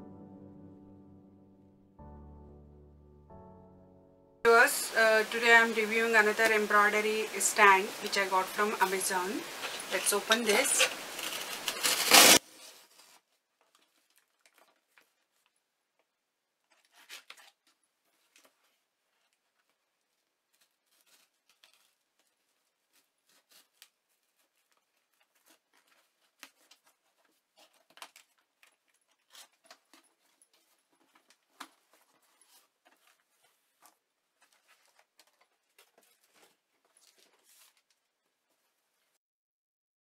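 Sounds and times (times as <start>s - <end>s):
paper rustling against cardboard: 7.4s - 15.6s, 16.6s - 39.2s
knife slitting packing tape: 10.8s - 12.5s, 16.8s - 17.6s
tape and flaps pulled apart: 10.8s - 13.2s, 16.7s - 17.8s.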